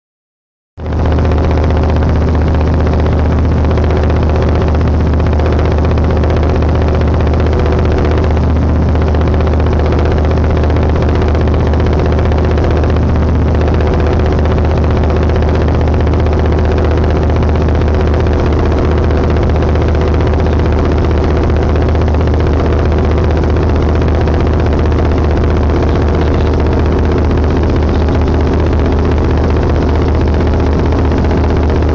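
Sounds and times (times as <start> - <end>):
boat engine droning: 0.8 - 31.9.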